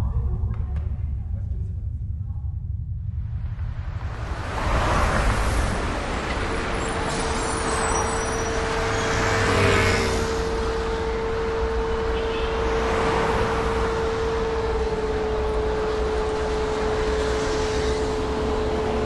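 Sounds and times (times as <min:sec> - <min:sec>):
steady hum: 0:00.0 - 0:06.6
passing vehicles rushing: 0:03.5 - 0:19.0.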